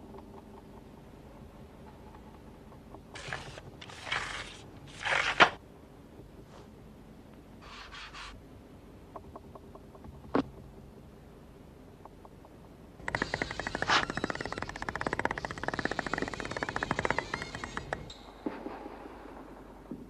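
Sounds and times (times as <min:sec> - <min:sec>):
scraping sliding sounds: 0:03.2 - 0:05.6
soft rustle: 0:06.4 - 0:06.8.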